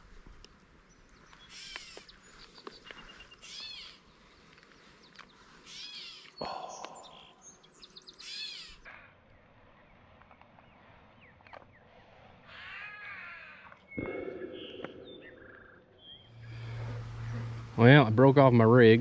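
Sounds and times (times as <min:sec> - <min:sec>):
bird calling: 0:01.2 - 0:09.1, 0:12.4 - 0:19.0.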